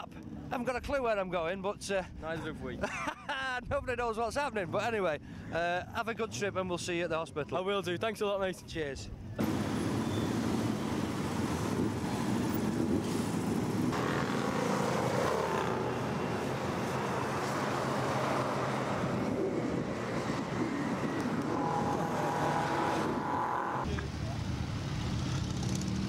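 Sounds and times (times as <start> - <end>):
motorcycles riding past: 9.4 - 26.0.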